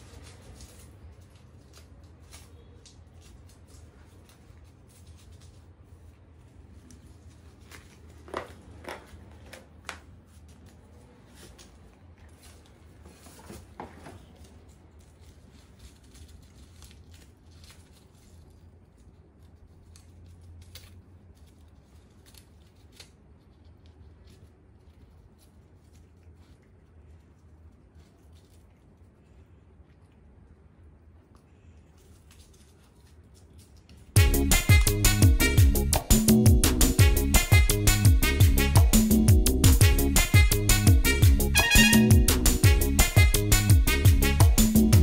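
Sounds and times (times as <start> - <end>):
paper rustling and tearing: 0.0 - 26.7
low steady hum: 0.0 - 45.0.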